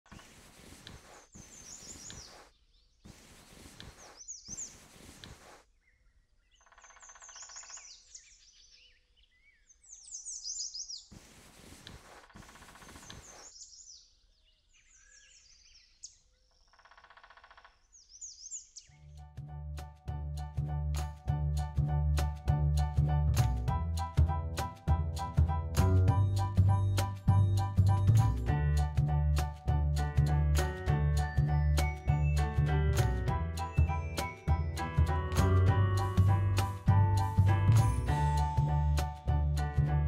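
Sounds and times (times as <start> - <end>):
small birds chirping and singing: 1.3 - 5.0, 5.6 - 11.2, 12.3 - 16.9, 17.7 - 19.2.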